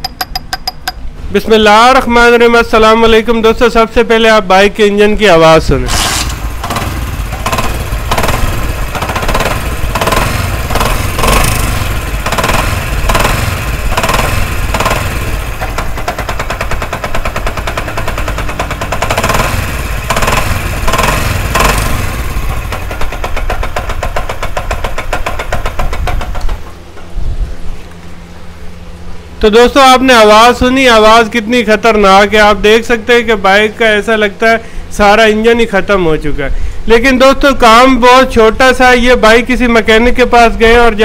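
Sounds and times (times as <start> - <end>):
small motorcycle engine running harshly: 5.9 - 26.9.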